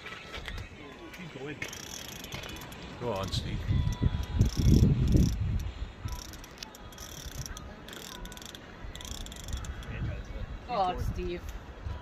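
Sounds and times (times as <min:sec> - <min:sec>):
fishing reel whirring and clicking: 0:01.6 - 0:10.0
wind noise on microphone: 0:02.3 - 0:12.0.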